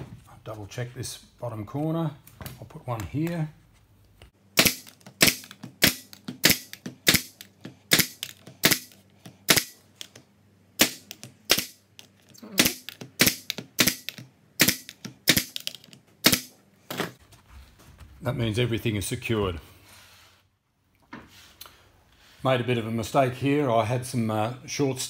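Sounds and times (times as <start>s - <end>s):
stapler firing sharp shots: 4.5s - 10.1s, 10.8s - 11.9s, 12.5s - 16.6s.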